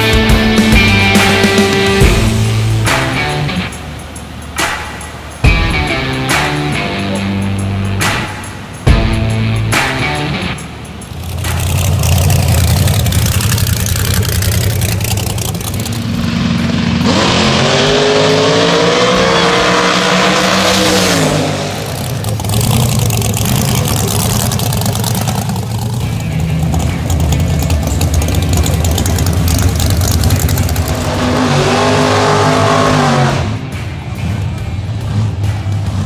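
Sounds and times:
race car engine at full throttle: 0.0 - 36.0
race engine idling loudly: 11.0 - 17.2, 21.7 - 31.6.

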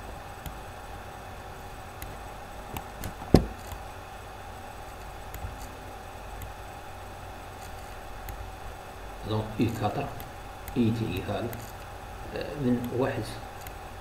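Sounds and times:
low electrical hum: 0.0 - 14.0
sharp knock: 3.3 - 3.6.

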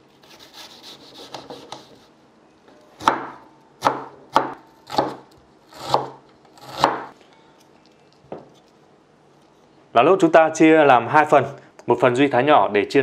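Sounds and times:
knife slicing onion: 0.1 - 2.1, 3.0 - 7.2.

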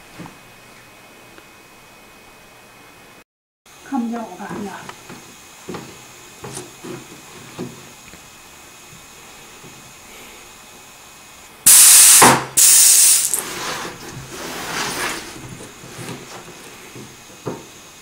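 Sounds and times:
compressed air hissing blasts: 11.7 - 13.6.

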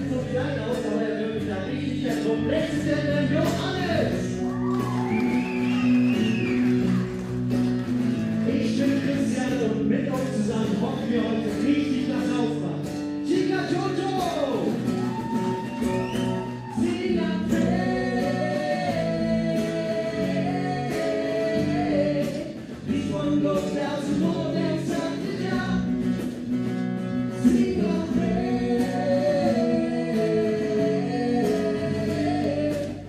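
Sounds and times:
live rock band playing: 0.0 - 29.1
person singing: 16.5 - 26.0, 27.4 - 33.0.

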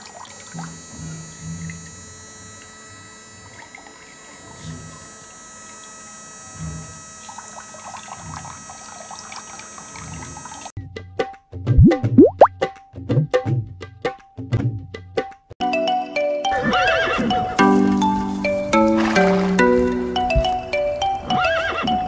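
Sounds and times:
water pump humming: 0.0 - 10.7.

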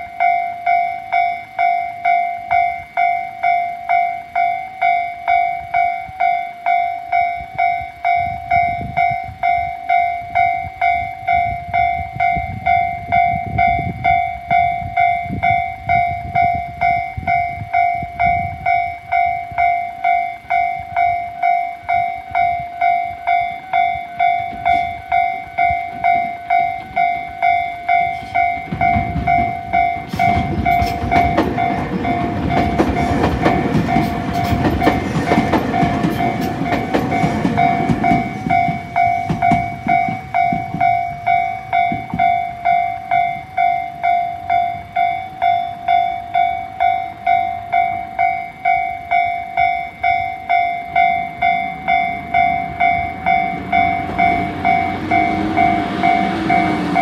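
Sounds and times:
level crossing warning bell: 0.0 - 57.0
train wheels clattering over rails: 24.2 - 43.4, 51.0 - 57.0.

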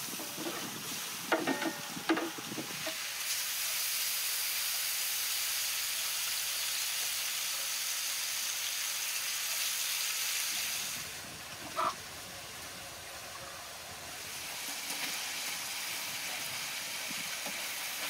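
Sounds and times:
skimmer knocking and scraping: 0.1 - 2.8.

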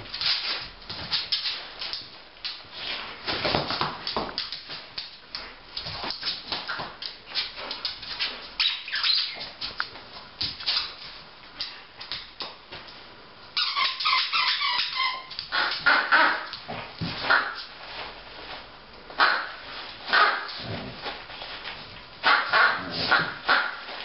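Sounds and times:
dog claws clicking on wood floor: 3.3 - 8.5, 9.4 - 13.0
toy squeaking: 13.6 - 15.3.

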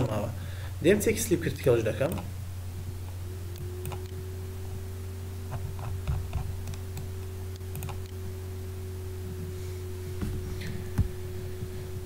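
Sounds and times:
low electrical hum: 0.0 - 12.0
computer clicks: 5.8 - 8.2.

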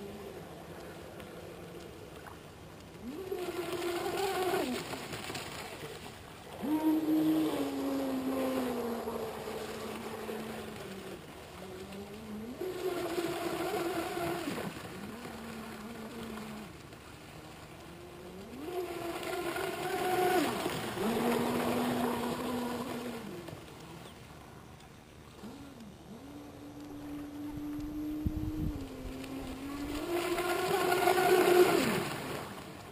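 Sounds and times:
rc boat motor whining: 3.0 - 5.0, 6.5 - 16.8, 17.7 - 24.2, 25.2 - 32.6.

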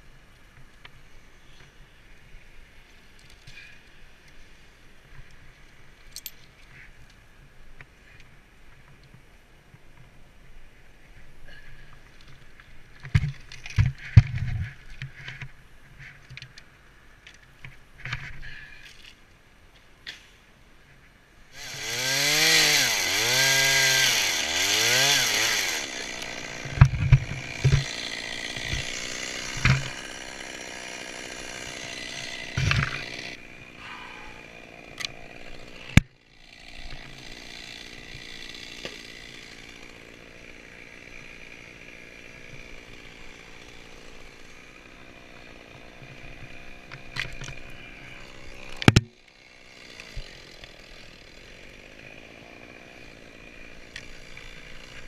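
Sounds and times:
chainsaw revving and idling: 21.5 - 55.0
chainsaw knocking against tree: 24.0 - 33.4, 48.2 - 49.2.

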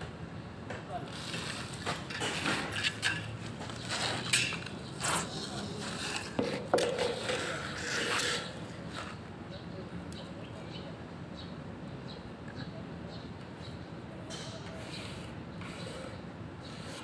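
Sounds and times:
hard objects knocking and scraping: 1.4 - 9.2.

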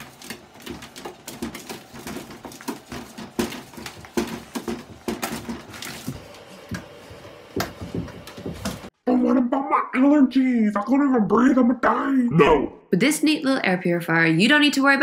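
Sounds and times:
puppy claws scrabbling on bathtub: 0.0 - 6.8.

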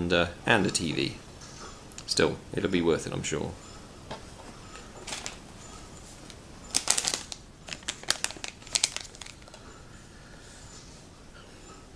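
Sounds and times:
plastic bag crinkling: 5.0 - 5.4, 6.7 - 9.6.

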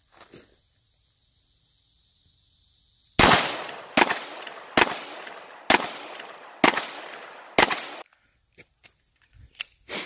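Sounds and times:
gunshots with echo: 3.2 - 8.0.

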